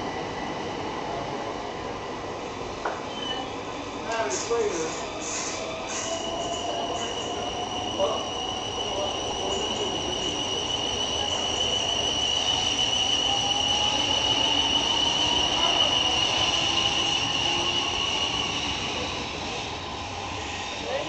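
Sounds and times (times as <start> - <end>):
train rumble: 0.0 - 21.0
high wheel squeal: 4.4 - 20.9.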